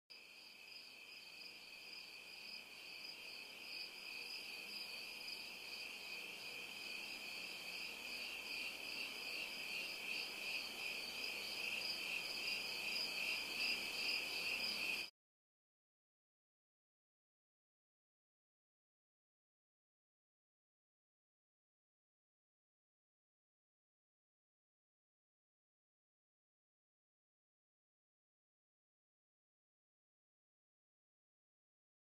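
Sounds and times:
crickets chirping: 0.1s - 15.1s.

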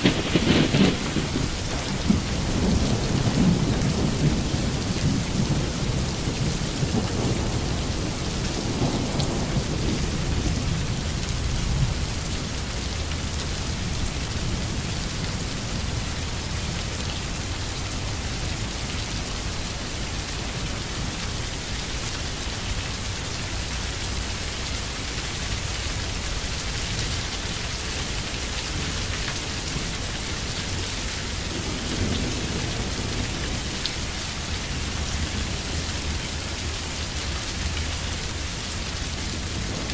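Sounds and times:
low rolls of thunder: 0.0s - 13.1s, 30.7s - 36.2s
steady rain falling: 0.0s - 39.9s.

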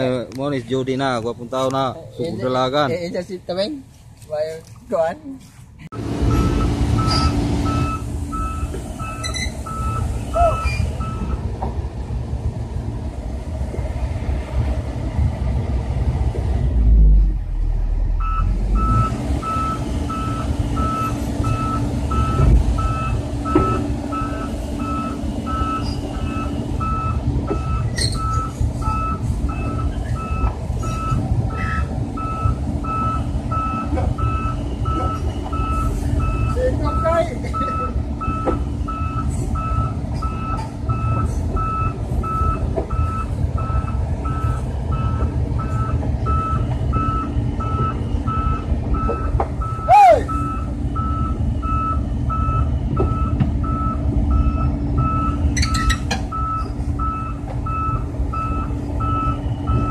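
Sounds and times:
diesel engine running: 5.4s - 59.9s
excavator travel alarm beeping: 6.3s - 11.4s, 18.1s - 59.9s.

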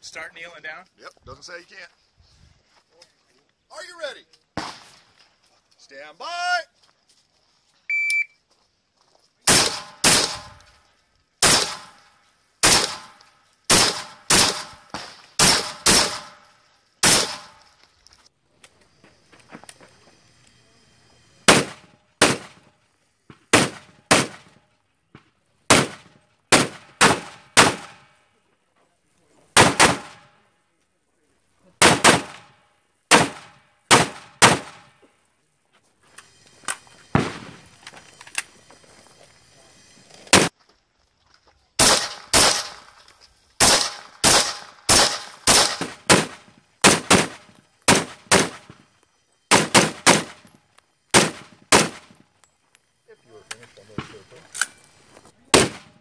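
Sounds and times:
rifle shots with echo: 4.6s - 5.0s, 9.4s - 10.6s, 11.4s - 12.0s, 12.6s - 17.6s, 21.5s - 22.7s, 23.4s - 24.6s, 25.7s - 28.2s, 29.6s - 30.4s, 31.8s - 35.0s, 37.1s - 37.6s, 41.8s - 43.0s, 43.6s - 48.8s, 49.5s - 50.5s, 51.1s - 52.2s, 55.5s - 56.0s.

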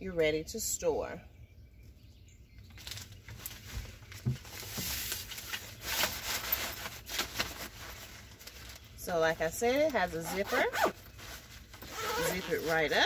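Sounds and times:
fabric and netting rustling: 2.8s - 13.0s.

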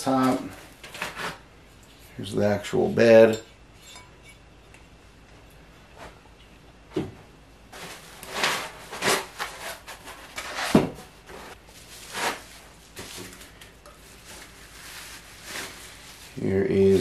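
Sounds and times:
rustling packing material: 7.7s - 17.0s.

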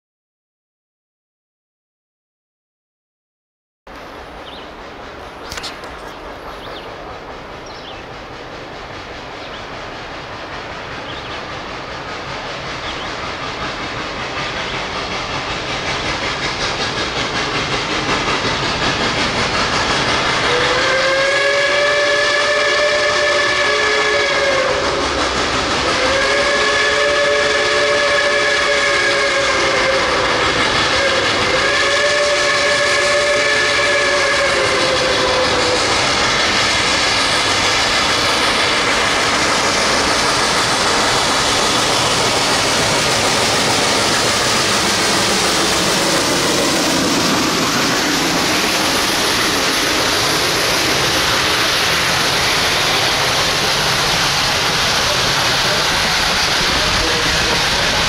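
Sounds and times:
steam locomotive running: 3.9s - 58.0s
steam whistle blasts: 20.2s - 25.2s, 25.8s - 37.2s.

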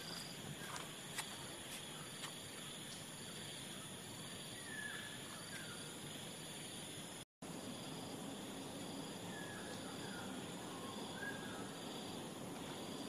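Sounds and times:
light footsteps clicking: 0.0s - 3.5s
crickets and insects chirring: 0.0s - 13.0s.

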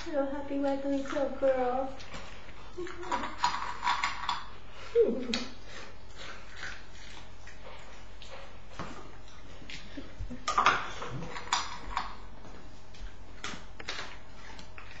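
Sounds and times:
dog eating from metal bowl: 0.0s - 4.7s, 10.4s - 12.3s
low steady hum: 0.0s - 15.0s.

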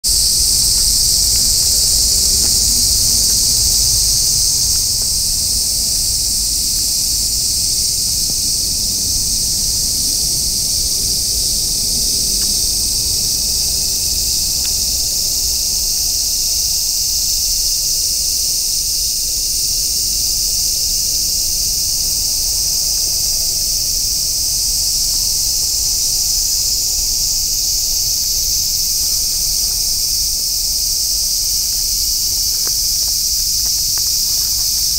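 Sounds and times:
insects buzzing: 0.0s - 34.9s.

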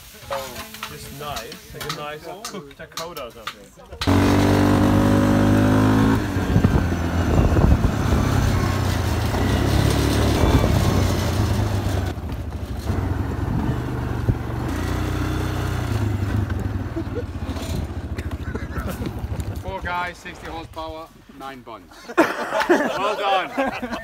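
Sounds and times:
small vehicle engine running: 4.0s - 19.6s
vehicle driving on gravel: 4.0s - 20.8s.

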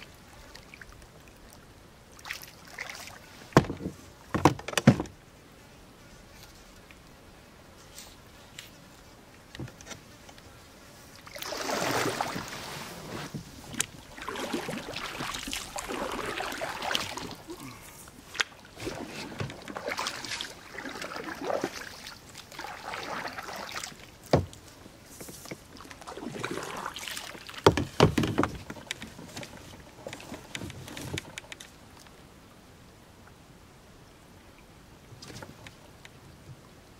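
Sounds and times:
water splashing and swishing: 0.0s - 5.3s, 10.8s - 32.1s.

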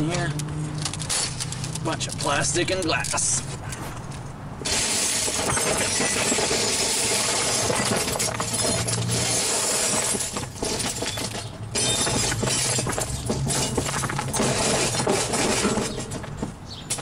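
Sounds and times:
glass shattering into trash can: 4.6s - 16.0s.

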